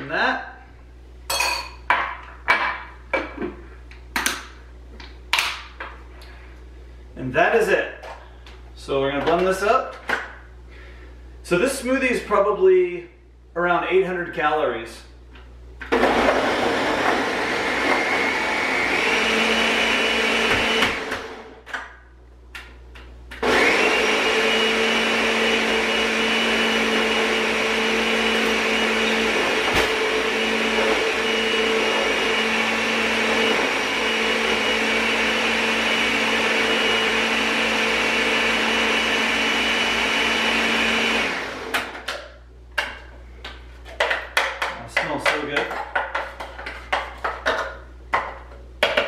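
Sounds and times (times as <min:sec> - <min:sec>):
blender motor whining: 0:15.9 - 0:21.6, 0:23.4 - 0:42.0.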